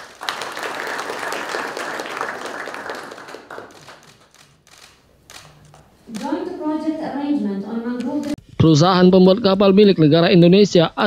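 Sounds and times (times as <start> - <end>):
audience applause: 0.0 - 4.4.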